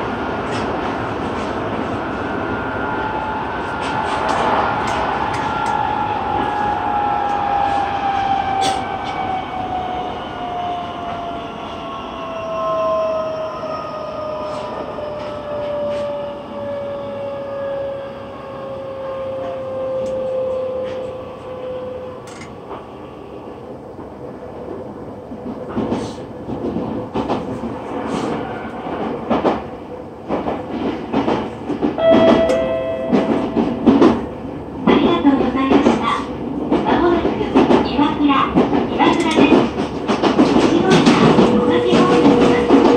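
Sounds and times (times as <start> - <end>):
train knocks and clatter: 0.0 - 2.0, 3.7 - 9.4, 14.4 - 17.0, 23.9 - 42.9
steady beep: 32.0 - 34.0.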